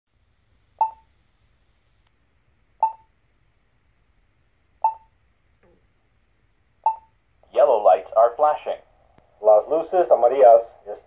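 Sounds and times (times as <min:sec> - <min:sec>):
push button locator beeps: 0:00.8 - 0:01.0, 0:02.8 - 0:03.1, 0:04.8 - 0:05.1, 0:06.9 - 0:07.1.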